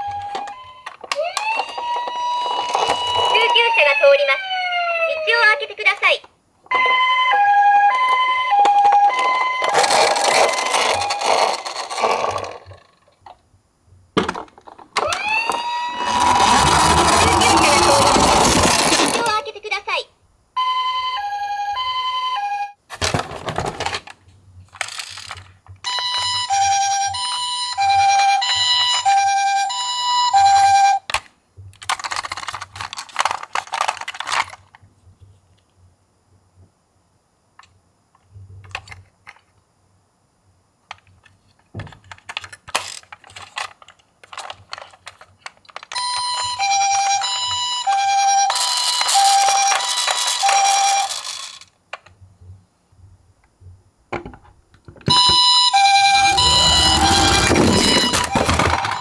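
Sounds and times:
toy siren two-tone: 0:00.0 - 0:05.5, 0:06.7 - 0:11.8, 0:15.0 - 0:19.0, 0:20.6 - 0:22.8, 0:25.9 - 0:31.1, 0:45.9 - 0:51.3, 0:55.1 - 0:59.0
handling rustles and clicks: 0:31.1 - 0:35.7, 0:40.9 - 0:46.5, 0:56.2 - 0:59.0.

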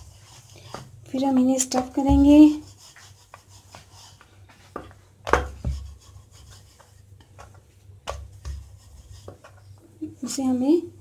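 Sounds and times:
rolling pin rubbing dough: 0:00.0 - 0:09.8
rolling pin knocking on board: 0:04.8 - 0:06.0.

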